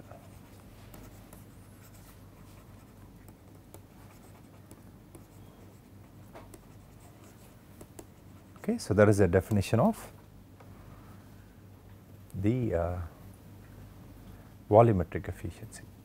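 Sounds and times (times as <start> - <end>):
low steady hum: 0.0 - 16.0
stylus scratching on tablet screen: 0.1 - 8.7.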